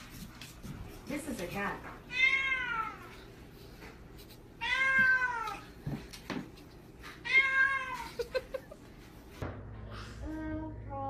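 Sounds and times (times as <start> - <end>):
cat meowing: 2.1 - 3.1, 4.6 - 5.7, 7.2 - 8.1.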